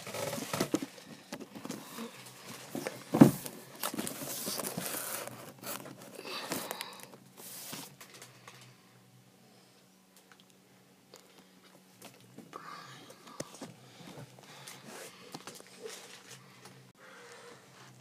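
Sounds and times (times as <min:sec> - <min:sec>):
plastic package rustling: 0:14.6 - 0:16.8.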